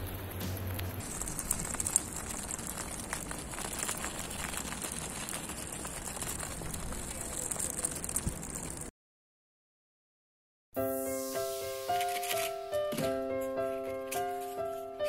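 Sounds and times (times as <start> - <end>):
wheels crackling on grit: 0.0 - 8.9.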